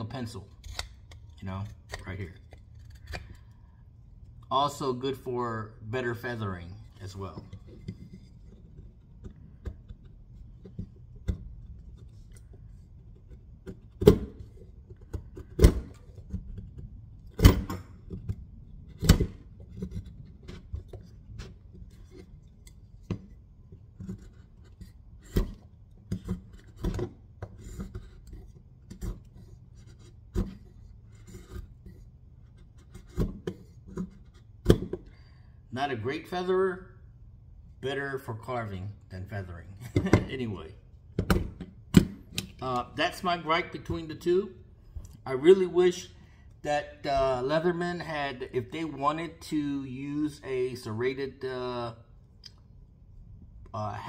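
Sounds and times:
knife scraping wood: 0:00.2 - 0:04.4, 0:19.6 - 0:34.6.

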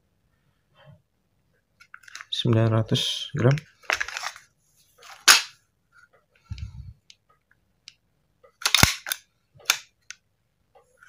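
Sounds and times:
metal clacks of pistol handling: 0:08.6 - 0:09.9.

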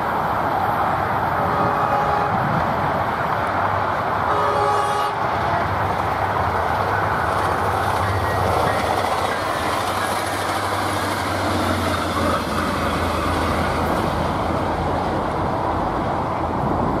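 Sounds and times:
diesel locomotive engine drone: 0:00.0 - 0:17.0
train wheels clattering on rails: 0:05.3 - 0:15.5.

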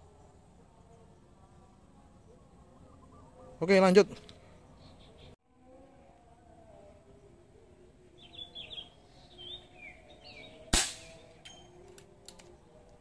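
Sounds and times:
birds chirping: 0:02.2 - 0:05.4, 0:08.1 - 0:12.6
air rifle shot: 0:10.7 - 0:11.3.

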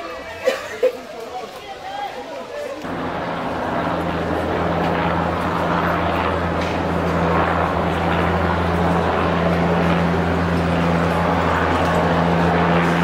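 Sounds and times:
engine drone: 0:02.9 - 0:13.0.

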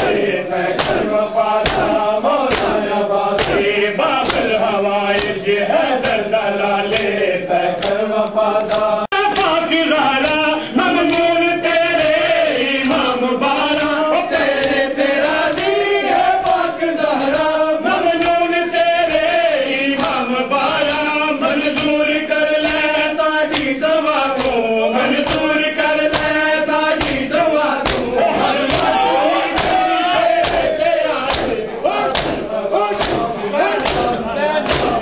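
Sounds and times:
men chanting a lament: 0:00.0 - 0:35.0
hands slapping bare chests: 0:00.8 - 0:04.5, 0:05.2 - 0:05.4, 0:06.0 - 0:06.3, 0:06.9 - 0:07.2, 0:07.8 - 0:08.0, 0:08.6 - 0:09.6, 0:10.2 - 0:10.4, 0:14.6 - 0:15.8, 0:16.4 - 0:16.7, 0:19.9 - 0:20.2, 0:22.6 - 0:22.9, 0:23.5 - 0:23.8, 0:24.4 - 0:24.6, 0:25.2 - 0:26.4, 0:27.0 - 0:29.0, 0:29.6 - 0:29.8, 0:30.4 - 0:35.0.

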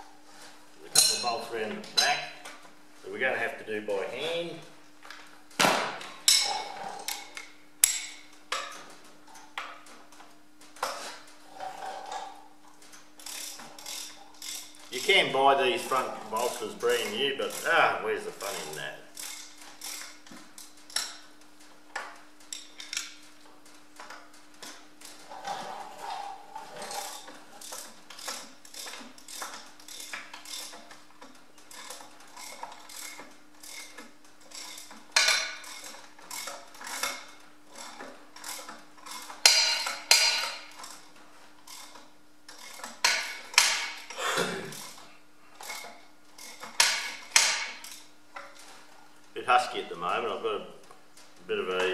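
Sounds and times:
ratchet spanner clicking: 0:18.5 - 0:21.2.

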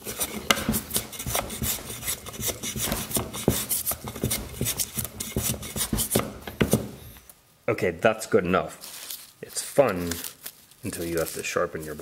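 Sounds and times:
block plane shaving wood: 0:00.0 - 0:06.9.

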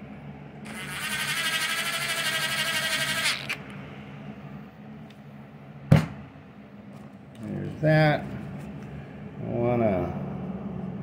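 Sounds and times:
electric screwdriver motor whine: 0:00.7 - 0:03.6.

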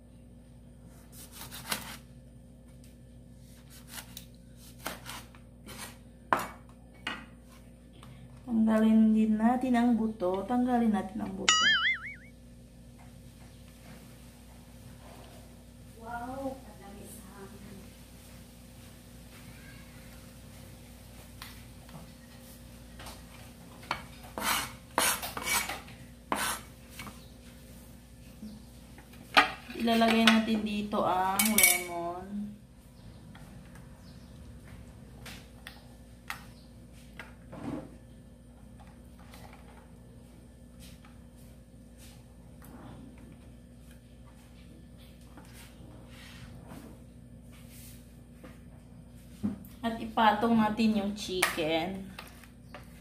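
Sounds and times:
knife scraping cutting board: 0:01.1 - 0:02.1, 0:03.5 - 0:06.0, 0:24.1 - 0:27.1.

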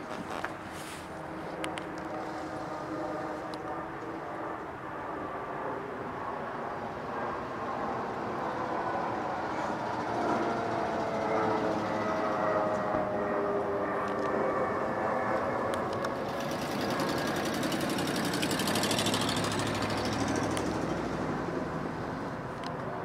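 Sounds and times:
distant vehicle rumble: 0:00.0 - 0:04.8, 0:06.8 - 0:23.0.

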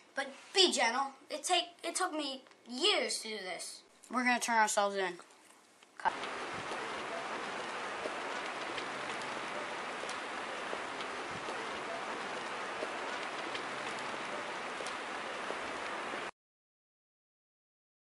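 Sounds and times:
fire crackling: 0:06.0 - 0:16.3
fire rushing hiss: 0:06.1 - 0:16.3.

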